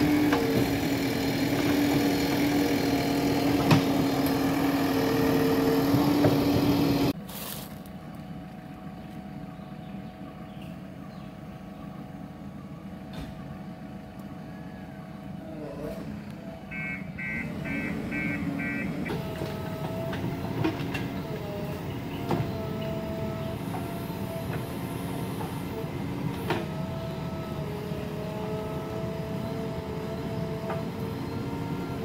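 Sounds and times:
diesel engine running: 0.0 - 32.0
reversing alarm beeps: 16.6 - 19.2.

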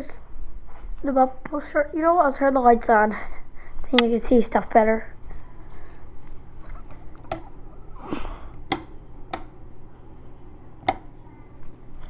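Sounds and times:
sharp clicks: 8.6 - 9.5.

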